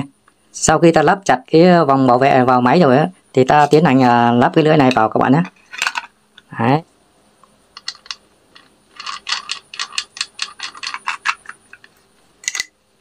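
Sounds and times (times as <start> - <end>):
lock nut spun by hand clicking: 7.7 - 12.8.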